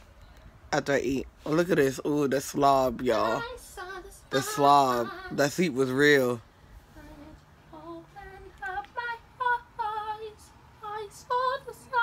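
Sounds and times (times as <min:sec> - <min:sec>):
woman singing unaccompanied: 0:03.0 - 0:05.6, 0:06.8 - 0:12.0.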